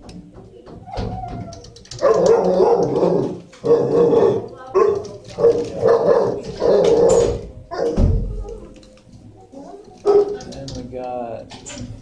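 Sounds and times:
dogs barking loudly: 1.9 - 8.0, 10.0 - 10.5.

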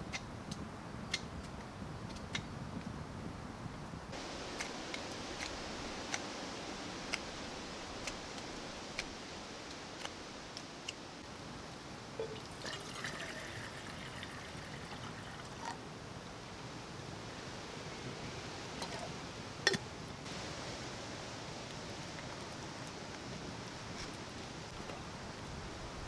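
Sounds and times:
steady background hiss: 0.0 - 26.0
knife carving wood: 4.6 - 6.2, 8.0 - 9.2.

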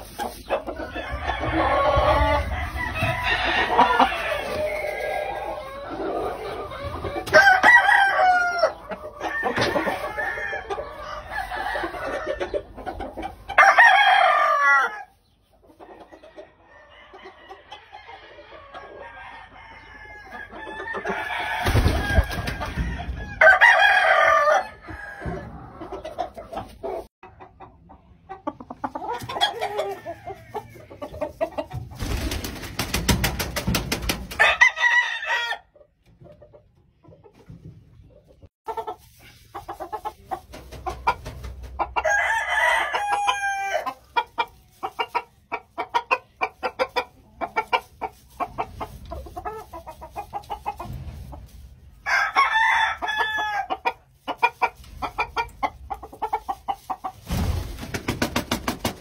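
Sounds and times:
rooster crowing: 0.9 - 5.3, 7.4 - 8.7, 19.0 - 25.5, 42.0 - 43.9, 52.1 - 53.7.

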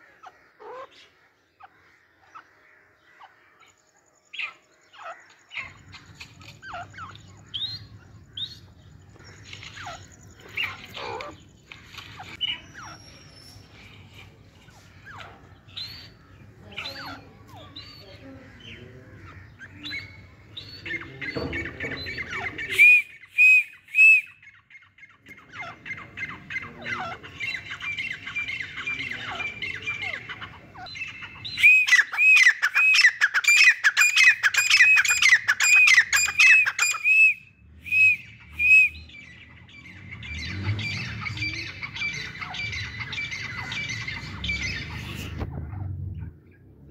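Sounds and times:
soft bird chattering: 0.0 - 37.3, 38.3 - 46.6.

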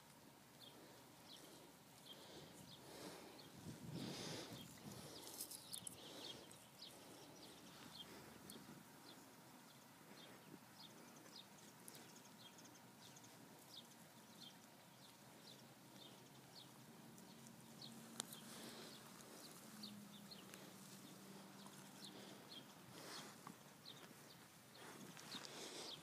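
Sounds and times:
small bird chirping: 0.0 - 26.0.

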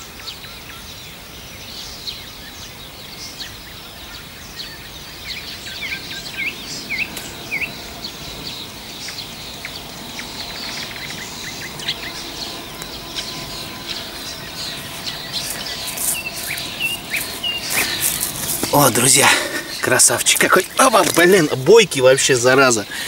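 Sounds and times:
small birds chirping: 0.0 - 23.0
swooping bird notes: 4.2 - 22.9
rustling: 12.7 - 21.7.

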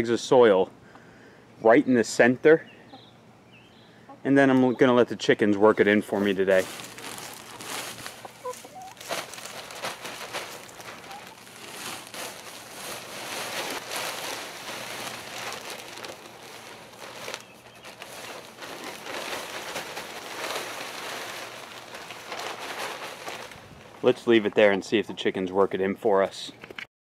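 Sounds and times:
soil pouring out of bags: 6.1 - 24.4
plastic bags crinkling: 6.1 - 24.5.

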